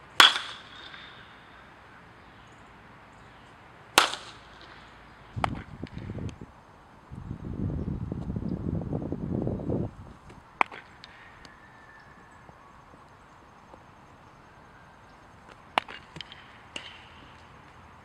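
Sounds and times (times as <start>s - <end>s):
bat cracking baseball: 0.2s - 1.6s, 3.9s - 6.2s, 10.6s - 11.2s, 15.4s - 17.8s
wind rumbling on microphone: 5.3s - 10.5s.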